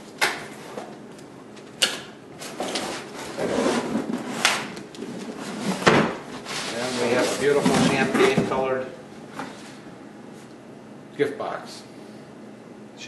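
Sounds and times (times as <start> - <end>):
cardboard flaps scraping: 2.5 - 8.7.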